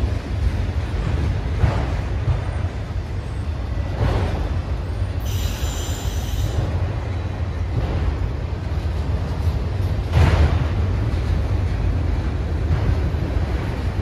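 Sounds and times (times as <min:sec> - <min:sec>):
freight train rumbling: 0:00.0 - 0:14.0
high wheel squeal: 0:05.2 - 0:06.6.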